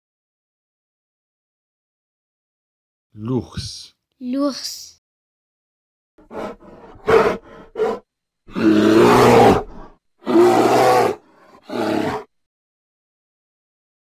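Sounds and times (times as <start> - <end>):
bear growling: 6.2 - 12.3.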